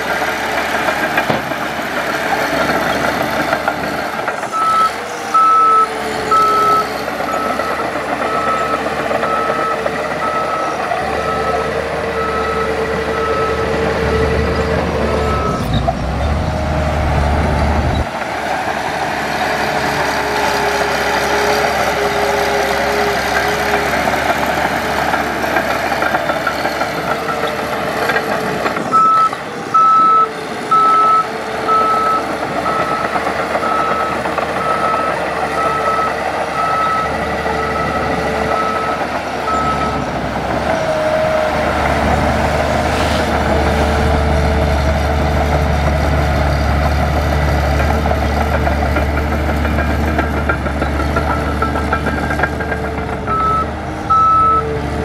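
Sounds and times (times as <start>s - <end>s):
heavy machine engine rumble: 0.0s - 55.0s
reversing alarm beeping: 4.4s - 15.9s, 25.8s - 40.1s, 53.0s - 54.8s.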